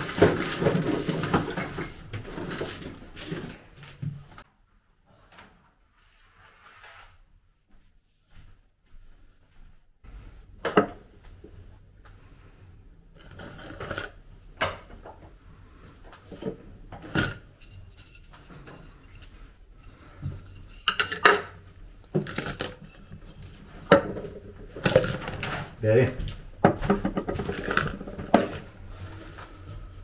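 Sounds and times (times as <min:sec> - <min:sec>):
figurines knocking on wooden shelf: 0:23.8 - 0:25.6, 0:26.6 - 0:28.6.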